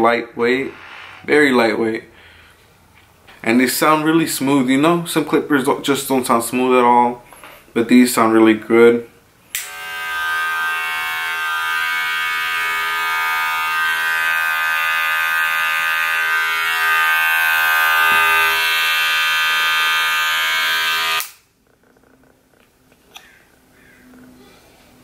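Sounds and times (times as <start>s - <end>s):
hair clipper buzzing: 9.5s - 21.4s.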